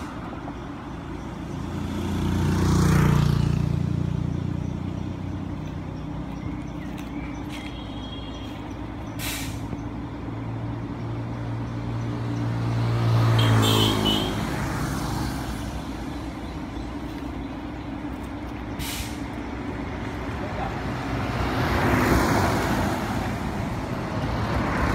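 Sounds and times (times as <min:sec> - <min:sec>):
bus diesel engine: 0:00.0 - 0:24.9
air brakes hissing: 0:09.1 - 0:09.8, 0:18.8 - 0:19.4.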